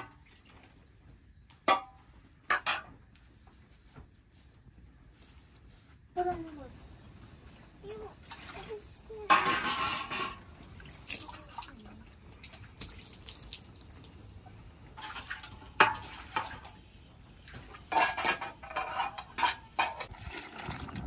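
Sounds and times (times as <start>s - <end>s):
pot and bowl clattering: 9.2s - 11.3s, 15.0s - 16.8s, 17.5s - 21.0s
water splashing: 10.6s - 14.4s.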